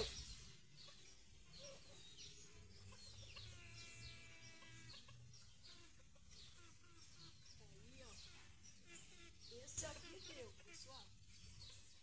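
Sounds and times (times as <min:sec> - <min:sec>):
faint birds chirping: 0:00.0 - 0:12.0.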